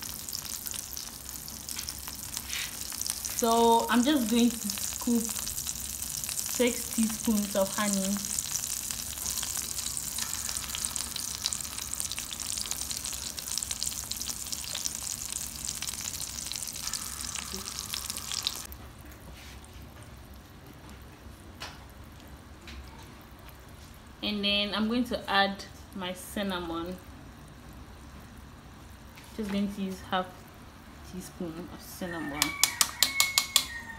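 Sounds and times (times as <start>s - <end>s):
butter sizzling in a frying pan: 0.0s - 18.7s.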